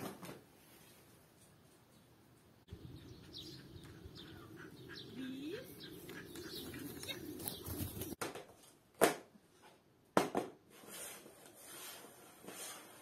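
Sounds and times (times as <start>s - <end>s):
small birds chirping: 1.9s - 8.2s.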